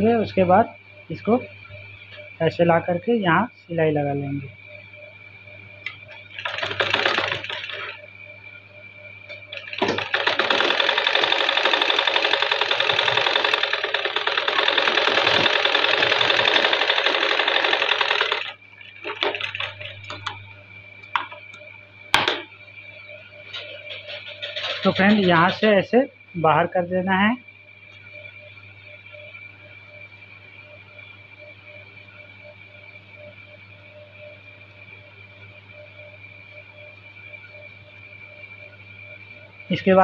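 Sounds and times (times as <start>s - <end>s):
sewing machine stitching: 9.5s - 19.7s.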